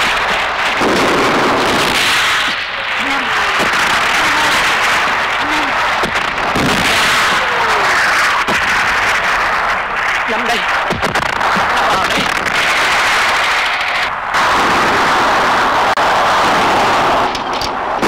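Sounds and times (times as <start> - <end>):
gunshot cracks: 0.0 - 15.1
dense steady noise: 0.0 - 18.0
indistinct voices: 2.6 - 8.4.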